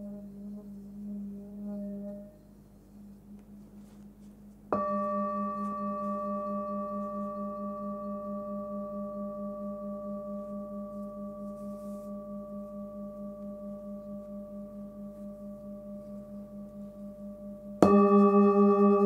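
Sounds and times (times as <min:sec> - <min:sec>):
singing bowl ringing: 0:04.7 - 0:19.0.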